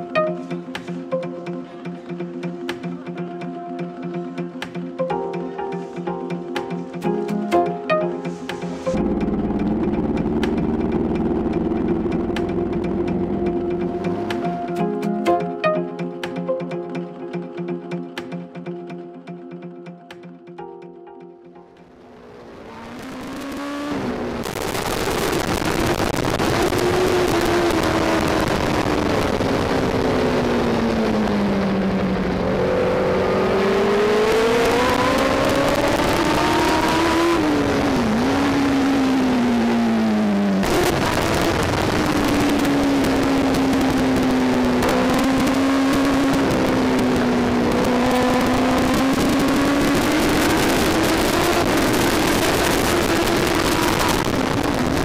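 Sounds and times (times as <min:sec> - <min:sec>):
motorcycle engine at speed: 0:08.3 - 0:15.3, 0:21.8 - 0:55.0.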